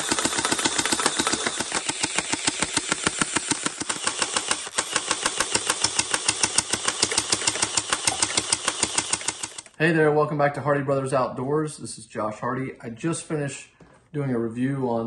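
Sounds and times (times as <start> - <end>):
gel blaster automatic fire: 0.0 - 9.7.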